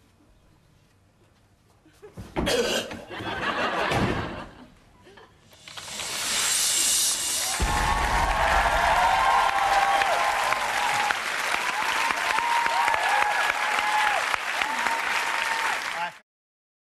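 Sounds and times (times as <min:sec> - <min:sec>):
high whoops: 0:07.4 - 0:16.0
audience applauding: 0:07.4 - 0:16.2.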